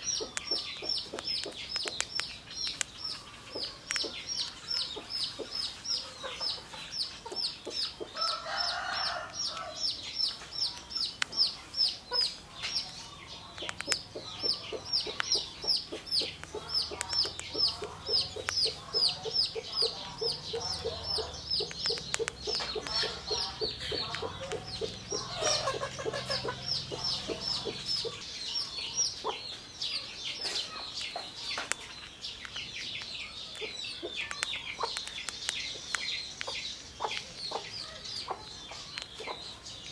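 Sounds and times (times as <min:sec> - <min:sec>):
animal chirping rapidly: 0:00.0 - 0:09.0, 0:09.8 - 0:29.4.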